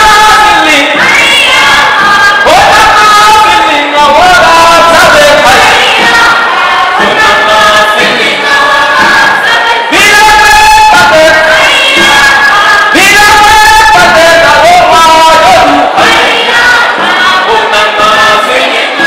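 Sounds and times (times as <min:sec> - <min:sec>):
group singing together: 0:00.0 - 0:19.0.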